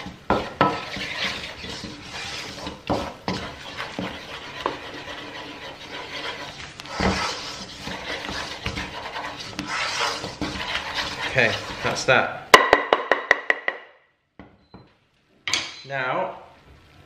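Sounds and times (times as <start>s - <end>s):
wooden spoon scraping a pan: 0.0s - 12.3s
spoon knocking against pan: 12.6s - 14.5s.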